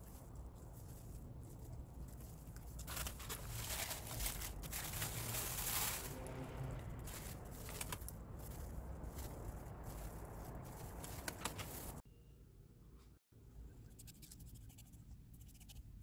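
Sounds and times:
plastic sheet crinkling: 0:00.0 - 0:12.0.

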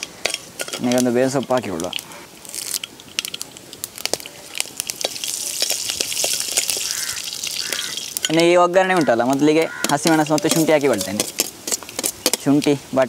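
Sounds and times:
steel spoon stirring: 0:00.0 - 0:12.7
mustard seeds popping: 0:00.0 - 0:12.8
leaves sizzling in oil: 0:00.0 - 0:13.0.

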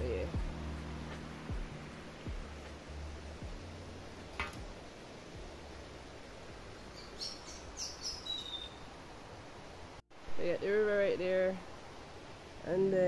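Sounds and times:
birds chirping: 0:00.0 - 0:09.6
bird whistle: 0:07.0 - 0:08.8.

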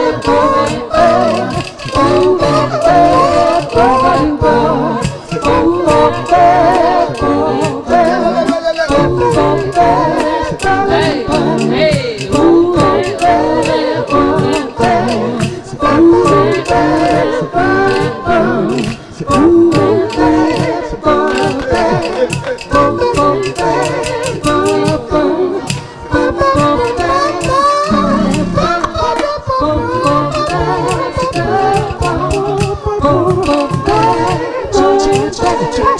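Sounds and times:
group singing in harmony: 0:00.0 - 0:35.9
percussion beat: 0:00.0 - 0:35.9.

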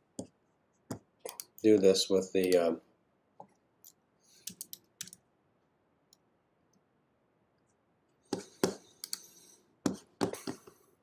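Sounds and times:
mouse and keyboard clicks: 0:03.8 - 0:05.2.

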